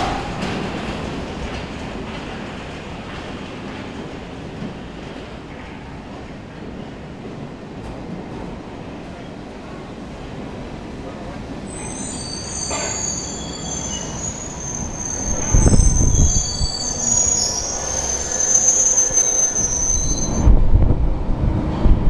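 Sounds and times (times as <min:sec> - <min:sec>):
underground train rumble: 0:00.0 - 0:22.0
high-pitched train squeals: 0:11.6 - 0:20.5.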